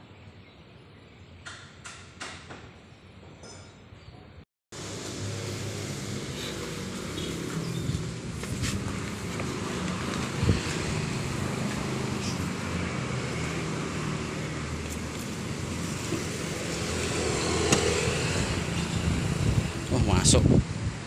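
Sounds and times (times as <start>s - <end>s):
motorcycle passing: 4.8s - 20.0s
traffic engine hum: 4.8s - 21.0s.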